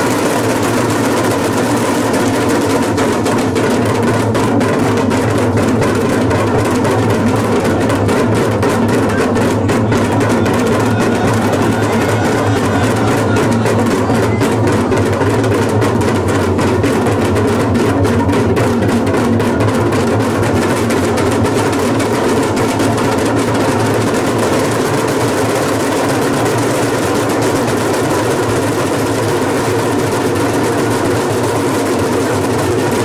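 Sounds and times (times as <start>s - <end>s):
hourglass drums fast roll: 0.0s - 33.0s.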